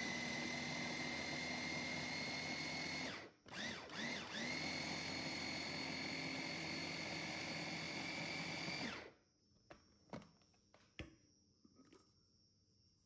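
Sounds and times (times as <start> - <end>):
blender motor whine: 0.0 - 9.2.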